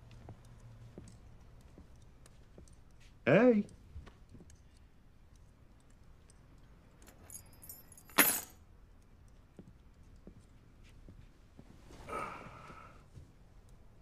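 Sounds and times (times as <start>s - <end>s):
keys jingling: 5.9s - 8.6s
keys clattering onto wooden desk: 6.2s - 8.7s.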